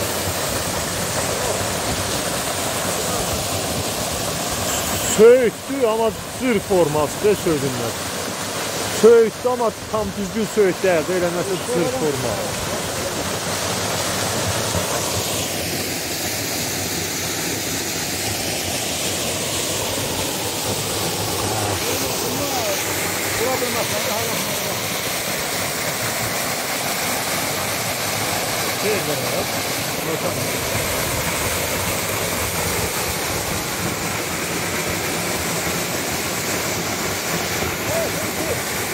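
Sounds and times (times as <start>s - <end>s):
waterfall splashing into pool: 0.0s - 38.9s.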